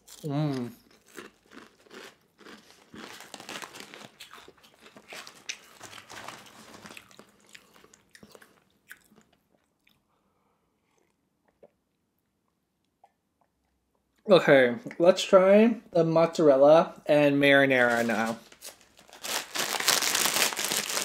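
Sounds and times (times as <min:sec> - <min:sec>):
potato chips crunching: 0:00.0 - 0:10.0, 0:17.9 - 0:21.0.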